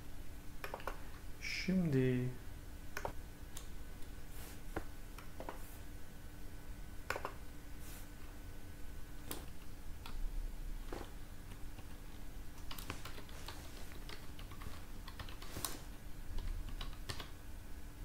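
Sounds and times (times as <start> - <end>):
typing on computer keyboard: 0.6 - 1.0, 12.6 - 15.8, 16.4 - 17.3.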